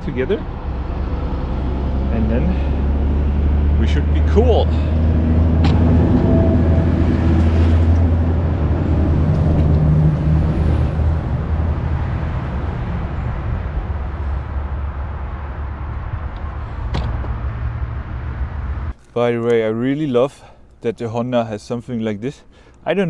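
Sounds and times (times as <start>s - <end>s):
vehicle engine rumble passing: 0.0s - 19.0s.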